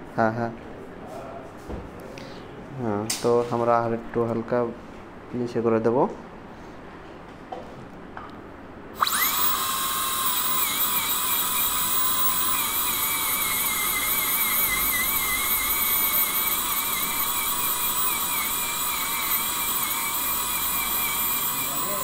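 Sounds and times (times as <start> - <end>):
dental drill high whine: 9.0 - 22.0.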